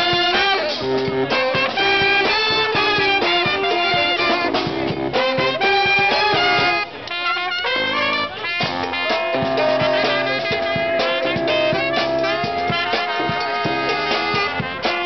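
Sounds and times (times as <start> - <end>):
drum hits: 0.0 - 6.8, 7.7 - 15.0
brass band playing jazzy tune: 0.0 - 15.0.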